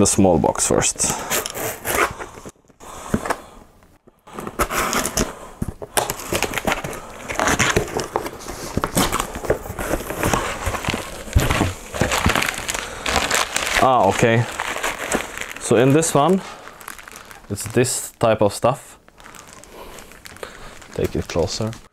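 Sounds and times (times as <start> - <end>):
cardboard scraping and rustling: 4.3 - 17.8.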